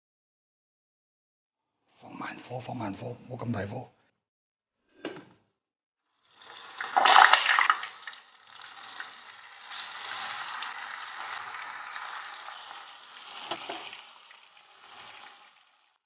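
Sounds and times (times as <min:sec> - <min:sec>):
meatballs sizzling in hot oil: 0:06.2 - 0:16.0.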